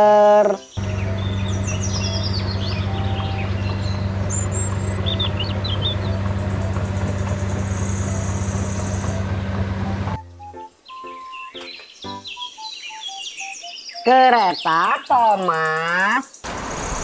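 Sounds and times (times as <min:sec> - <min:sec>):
birds chirping: 0:00.1 - 0:16.5
bulldozer diesel engine droning: 0:00.8 - 0:10.2.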